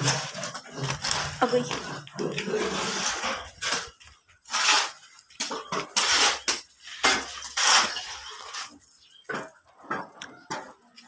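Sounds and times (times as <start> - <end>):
broom sweeping concrete floor: 2.3 - 8.9.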